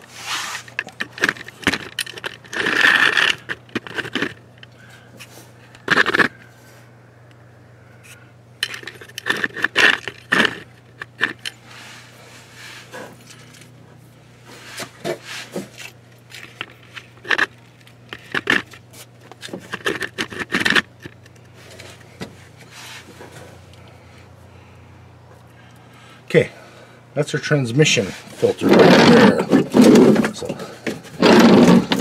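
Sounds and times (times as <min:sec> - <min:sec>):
clinks knocks and scrapes: 0:00.5 - 0:04.4, 0:05.2 - 0:06.4, 0:08.0 - 0:11.6, 0:14.5 - 0:23.5, 0:28.3 - 0:32.0.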